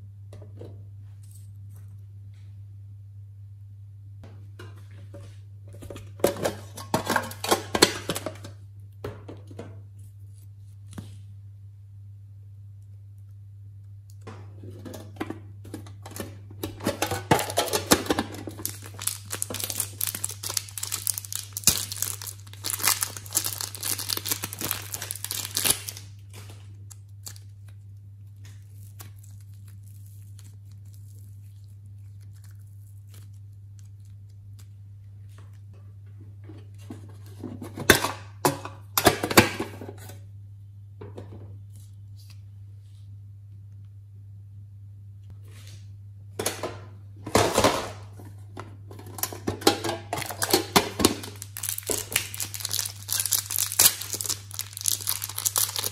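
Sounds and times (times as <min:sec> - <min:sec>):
steady low hum: 0:00.0 - 0:53.2
plastic wrapper crinkling: 0:17.4 - 0:34.8, 0:50.2 - 0:55.9.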